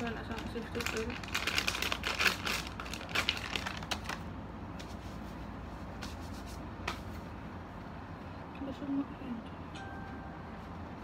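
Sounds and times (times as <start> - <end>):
plastic bottles crackling and clicking: 0.0 - 4.3.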